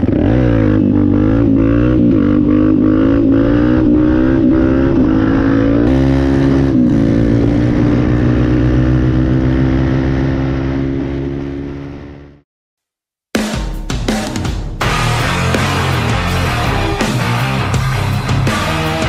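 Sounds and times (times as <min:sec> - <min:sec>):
dirt bike engine running: 0:00.0 - 0:12.4, 0:14.8 - 0:19.0.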